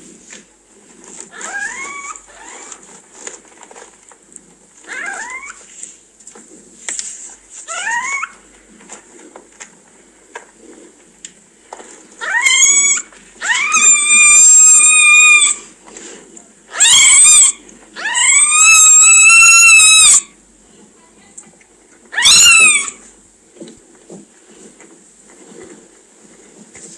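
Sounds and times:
newborn kittens mewing: 0:12.2 - 0:15.7, 0:16.7 - 0:20.4, 0:22.1 - 0:23.0.

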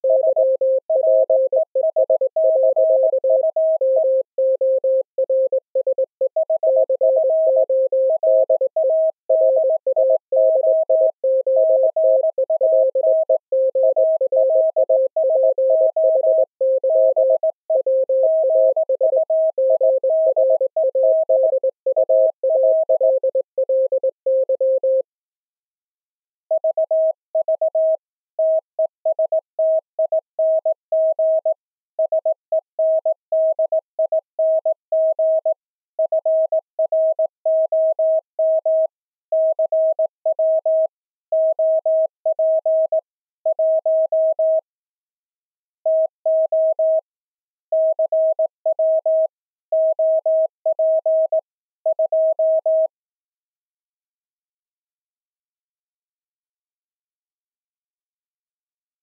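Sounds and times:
morse code tones: 0:00.0 - 0:25.0
second morse code tone: 0:00.0 - 0:25.0.

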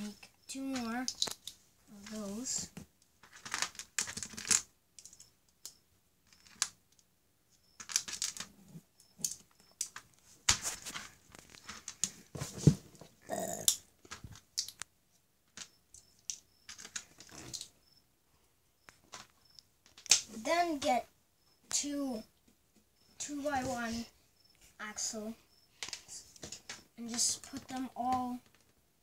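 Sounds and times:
plastic bricks clicking together: 0:00.7 - 0:02.2, 0:03.2 - 0:07.1, 0:07.8 - 0:10.1, 0:13.5 - 0:14.9, 0:15.5 - 0:17.7, 0:19.0 - 0:20.3.

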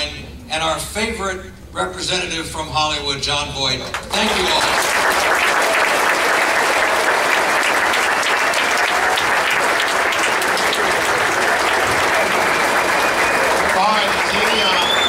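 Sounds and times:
large audience applauding: 0:03.9 - 0:15.0.

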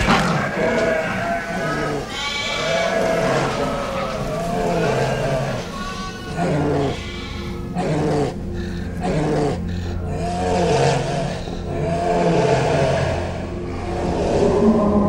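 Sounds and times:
sheep bleating: 0:00.0 - 0:13.2
steady low drone: 0:06.3 - 0:15.0.

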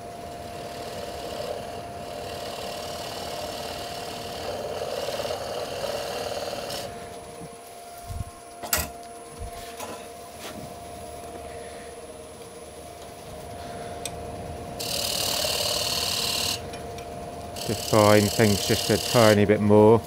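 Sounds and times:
wood lathe humming: 0:00.0 - 0:20.0
lathe tool cutting wood hiss: 0:00.4 - 0:07.2, 0:14.8 - 0:16.6, 0:17.6 - 0:19.5.

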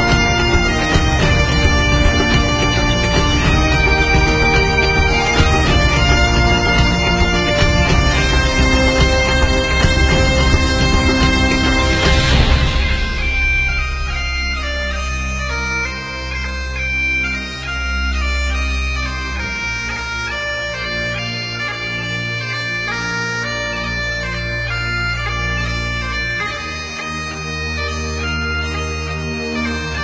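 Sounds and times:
low drone notes: 0:00.0 - 0:30.0
reedy wind instrument melody: 0:00.0 - 0:30.0.

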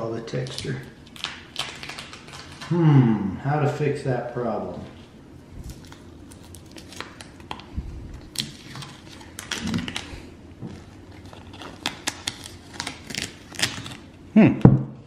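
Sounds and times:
masking tape peeling and crinkling: 0:00.0 - 0:02.8, 0:05.6 - 0:14.2.

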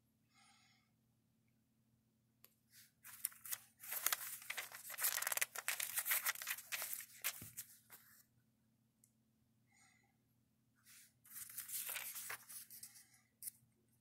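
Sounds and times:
paper pages flipping: 0:03.0 - 0:08.2, 0:11.3 - 0:12.9.

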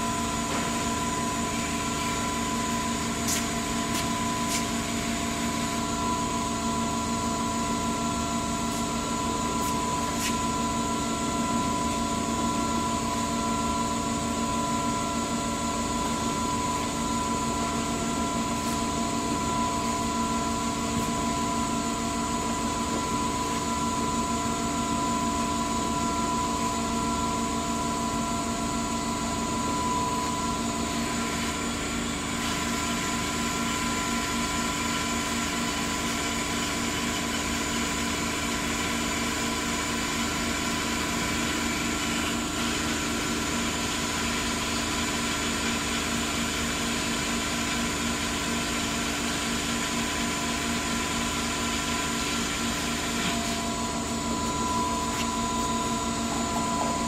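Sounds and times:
surface grinder machine hum: 0:00.0 - 0:57.0.

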